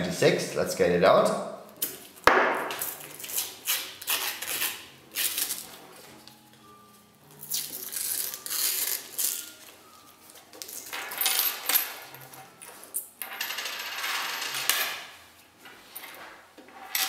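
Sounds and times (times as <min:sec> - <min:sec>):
paper wrapper rustling and tearing: 0:02.8 - 0:05.8, 0:07.4 - 0:09.7
coins clinking onto wooden table: 0:10.7 - 0:15.1.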